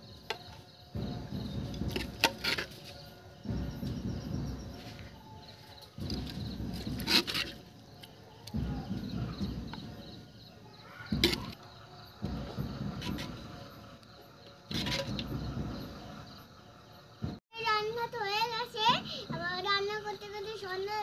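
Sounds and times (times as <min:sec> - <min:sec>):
low rumbling noise: 0:00.0 - 0:17.4.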